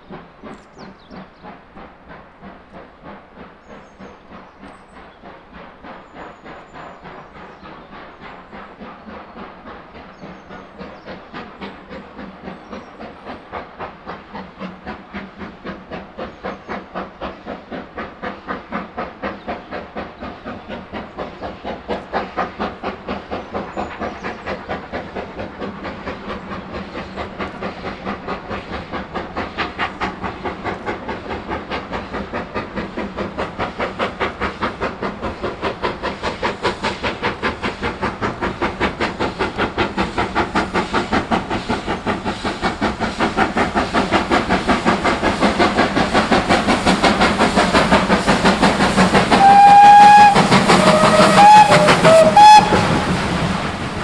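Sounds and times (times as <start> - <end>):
steam locomotive chuffing: 0.0 - 54.0.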